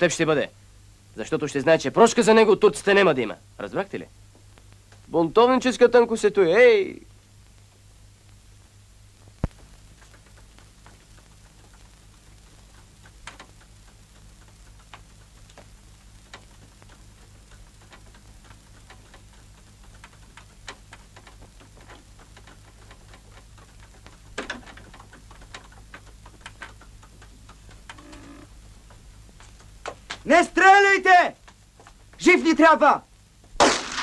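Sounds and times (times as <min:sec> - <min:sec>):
steady low hum: 0:00.0 - 0:30.6, 0:31.2 - 0:34.0
horse hooves clopping: 0:09.2 - 0:32.4
rattle: 0:09.6 - 0:30.2
carriage rolling on dirt: 0:09.6 - 0:32.8.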